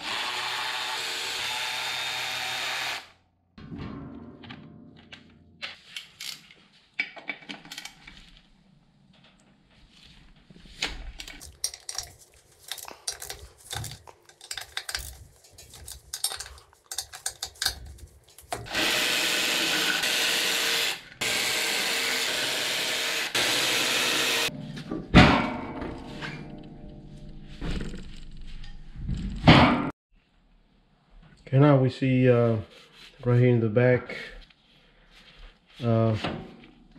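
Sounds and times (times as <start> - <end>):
electric ratchet spinning: 0.0 - 3.2, 18.4 - 24.5
tool clicks and knocks: 11.2 - 18.7.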